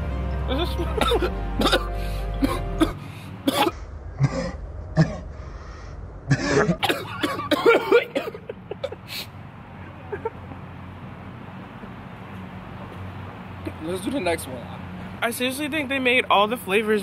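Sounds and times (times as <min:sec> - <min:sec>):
music: 0:00.0 - 0:03.0.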